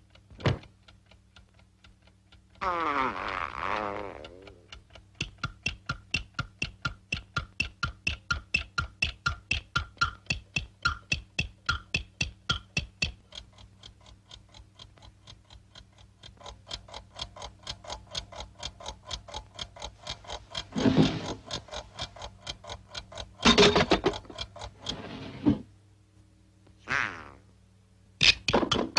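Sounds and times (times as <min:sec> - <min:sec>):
cartoon alarm clock ticking: 0:00.0 - 0:25.1, 0:28.2 - 0:28.9.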